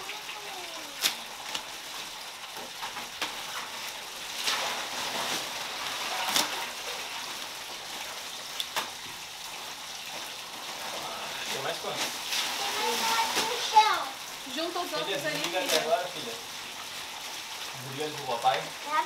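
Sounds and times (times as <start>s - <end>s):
ice rattling into water: 0.0s - 7.9s, 10.0s - 16.4s.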